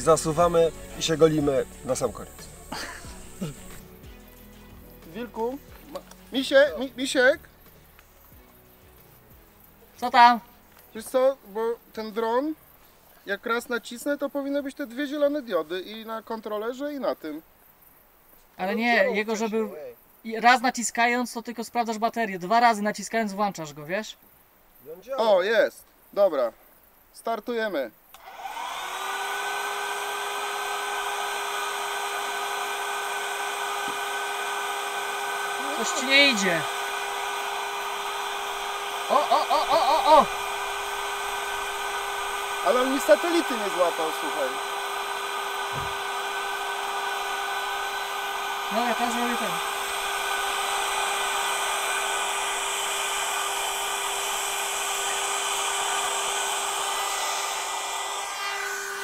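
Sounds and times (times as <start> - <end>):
drone propeller motors whining: 0.0 - 4.5, 28.2 - 59.0
propeller wash hiss: 0.0 - 9.4, 28.2 - 59.0.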